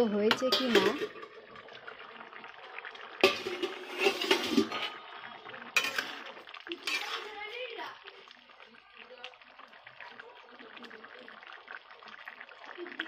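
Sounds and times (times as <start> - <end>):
food simmering in pan: 0.0 - 13.0
metal lid clinking on pan: 0.2 - 1.2, 5.8 - 6.2.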